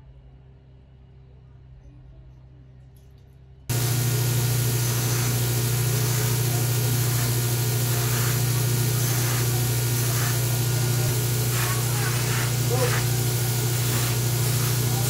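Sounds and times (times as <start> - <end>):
bench grinder running: 3.7 - 15.0.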